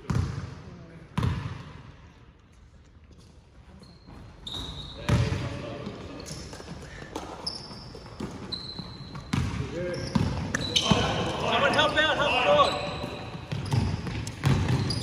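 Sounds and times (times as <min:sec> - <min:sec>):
shoe squeaks on court floor: 0:03.7 - 0:15.0
basketball thumping on floor: 0:13.5 - 0:14.9.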